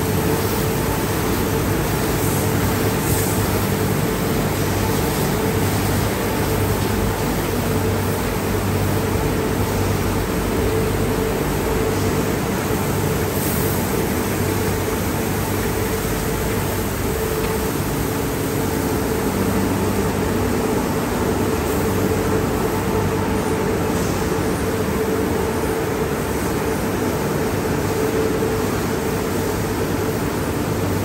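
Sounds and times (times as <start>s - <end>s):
water spraying: 0.0s - 22.9s
steady machine hum: 0.0s - 31.0s.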